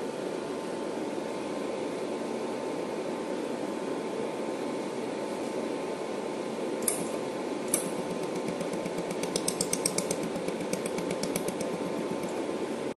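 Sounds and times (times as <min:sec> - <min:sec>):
steady hum: 0:00.0 - 0:13.0
laser welder pulses ticking: 0:07.7 - 0:12.4.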